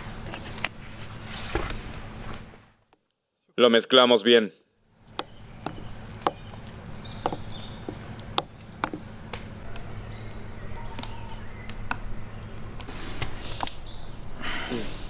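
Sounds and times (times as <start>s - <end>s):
steady low hum: 4.9s - 15.0s.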